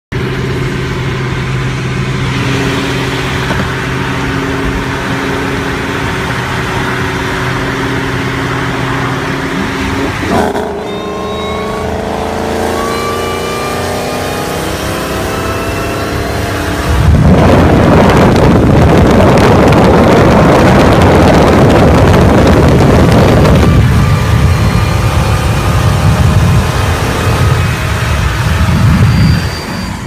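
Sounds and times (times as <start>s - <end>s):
car engine accelerating: 0.1s - 29.8s
thin rising whine: 0.2s - 30.0s.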